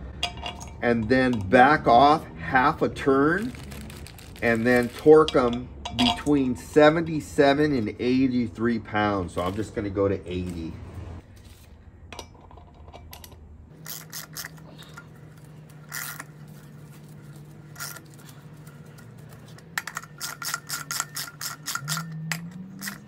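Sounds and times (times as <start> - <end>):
socket ratchet clicking: 15.9 - 16.4, 19.7 - 23.0.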